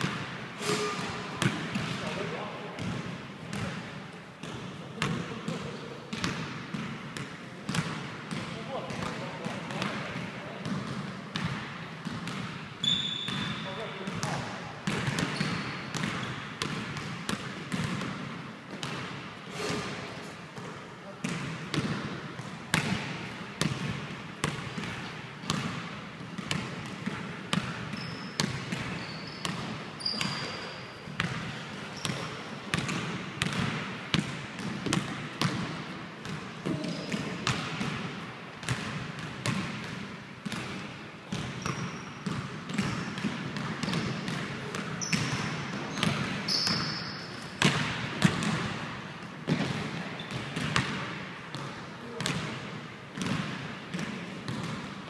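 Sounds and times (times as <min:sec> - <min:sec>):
basketballs bouncing on wooden floor: 0:00.0 - 0:55.0
shoe squeaks: 0:00.6 - 0:01.2, 0:12.8 - 0:14.0, 0:15.3 - 0:16.4, 0:27.9 - 0:31.0, 0:31.9 - 0:32.4, 0:36.7 - 0:37.3, 0:41.6 - 0:42.2, 0:45.0 - 0:47.6.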